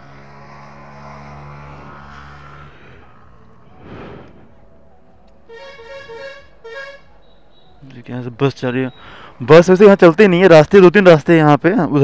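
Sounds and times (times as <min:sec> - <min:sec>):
vehicle engine humming: 0:00.0 - 0:11.7
short whoosh: 0:02.7 - 0:04.8.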